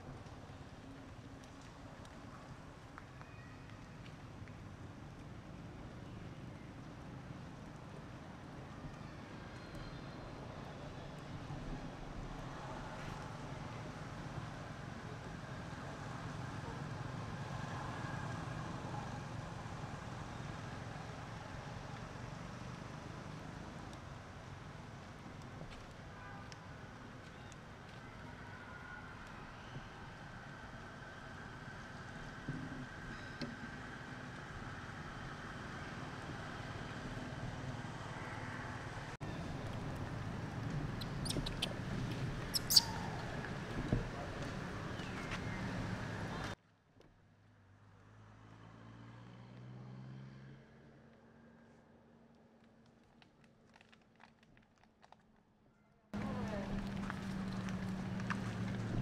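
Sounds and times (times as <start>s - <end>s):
low engine-like rumble: 28.0s - 46.6s, 56.2s - 59.0s
baby monkey squeaking: 40.9s - 41.8s, 42.4s - 43.2s.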